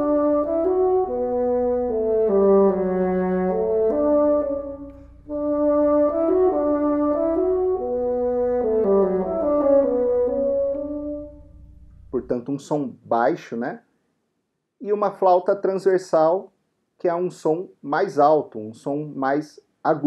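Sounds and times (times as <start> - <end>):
bassoon playing slow melody: 0.0 - 12.2.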